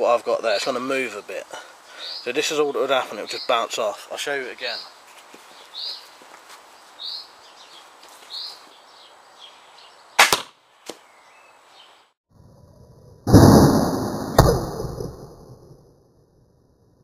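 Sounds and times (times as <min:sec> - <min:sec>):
birds chirping: 0:00.4 - 0:10.2, 0:11.0 - 0:12.1
sharp crack: 0:10.2 - 0:11.0, 0:13.3 - 0:15.9.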